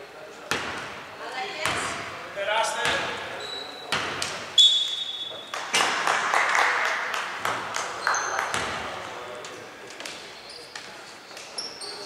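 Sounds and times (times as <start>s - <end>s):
basketball bouncing on court: 0.5s - 1.0s, 1.6s - 2.2s, 2.8s - 3.3s, 3.9s - 4.5s, 7.4s - 9.0s
sneakers squeaking on floor: 2.8s - 5.6s, 8.0s - 12.0s.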